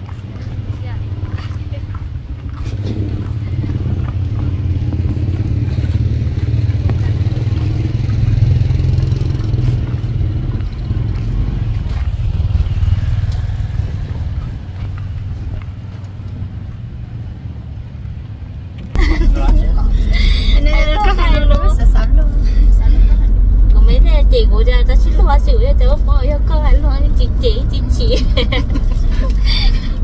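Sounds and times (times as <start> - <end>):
traffic rumble: 0.0 - 30.0.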